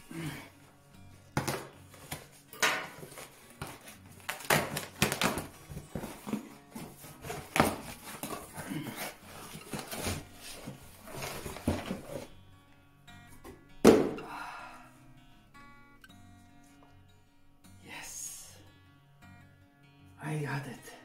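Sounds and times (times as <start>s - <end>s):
cardboard box rustling and scraping: 5.2s - 12.4s
item sliding out of box: 5.6s - 12.3s.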